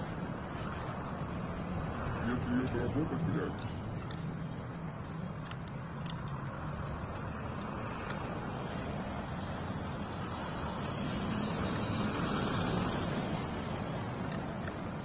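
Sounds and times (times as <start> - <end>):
distant road traffic rumble: 0.0 - 15.0.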